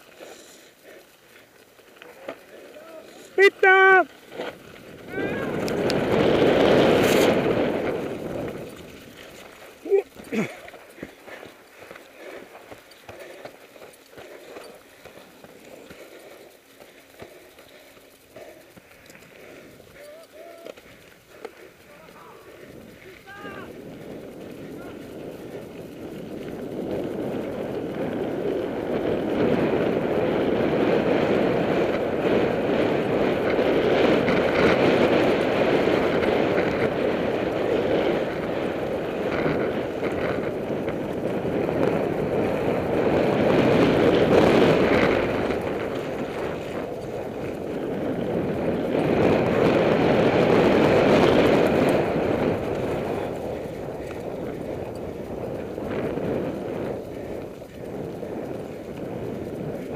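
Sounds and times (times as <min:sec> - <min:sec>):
tyres crunching on gravel: 0:00.0 - 0:28.6
bike rattling: 0:00.0 - 0:59.9
wind rushing on microphone: 0:02.1 - 0:13.6, 0:17.1 - 0:59.9.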